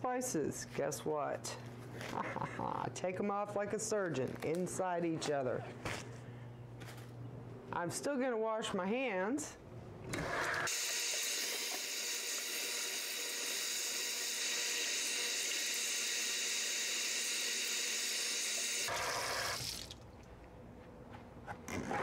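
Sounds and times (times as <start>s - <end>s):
faucet running: 10.7s - 20.0s.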